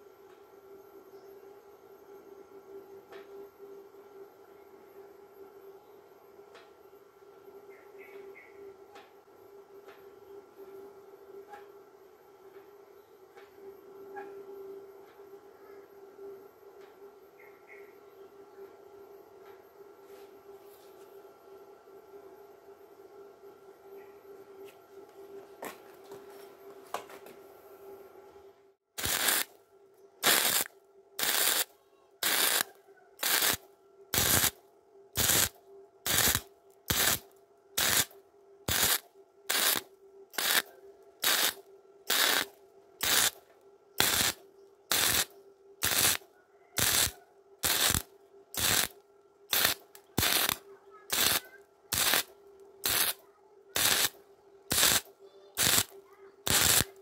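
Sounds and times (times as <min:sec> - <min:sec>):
steady hum: 0:00.0 - 0:57.0
welding arc crackling: 0:29.0 - 0:29.6, 0:30.2 - 0:34.6, 0:35.2 - 0:43.4, 0:44.0 - 0:46.2, 0:46.8 - 0:53.2, 0:53.8 - 0:57.0.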